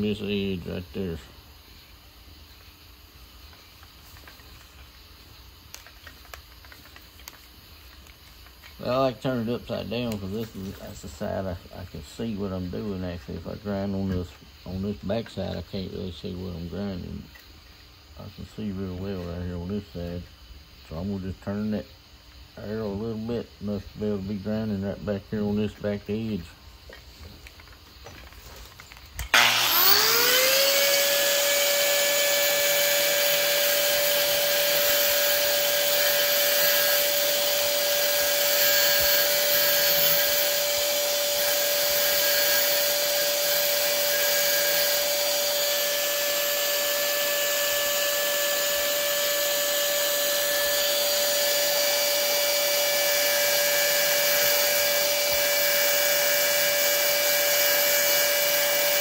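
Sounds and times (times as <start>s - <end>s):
grinding metal: 29.2s - 59.0s
power grinder whining: 29.2s - 59.0s.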